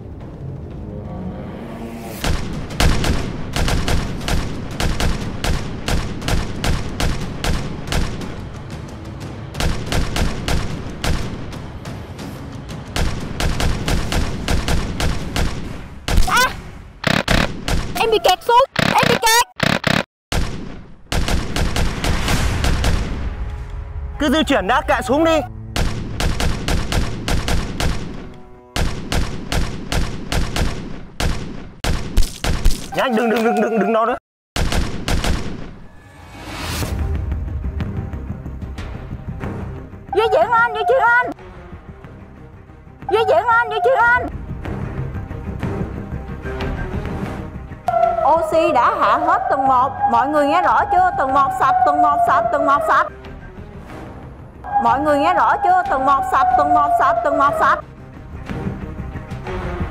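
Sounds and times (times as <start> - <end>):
paintball markers firing: 25.8 - 33.0.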